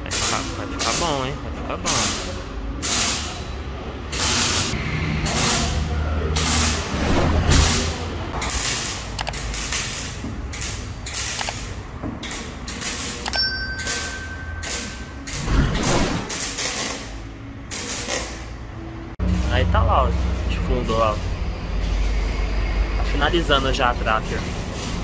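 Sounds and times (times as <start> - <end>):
arc welder crackling: 0.0 - 1.2, 1.9 - 3.4, 4.1 - 13.3, 14.0 - 22.6
click: 9.2 - 9.4
short chime: 13.3 - 15.2.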